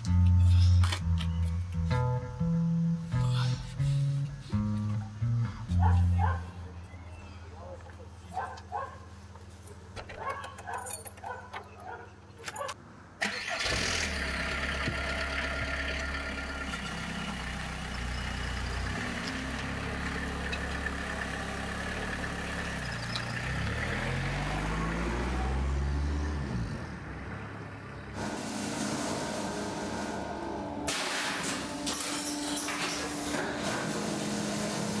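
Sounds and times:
van engine driving off: 13.3 - 30.9.

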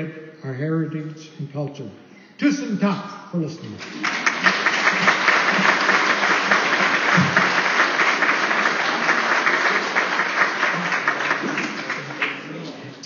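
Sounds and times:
audience applauding: 3.8 - 13.0.

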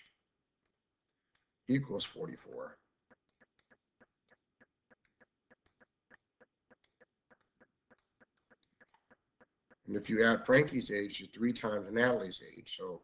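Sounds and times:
stylus tapping on pen tablet: 3.0 - 9.9.

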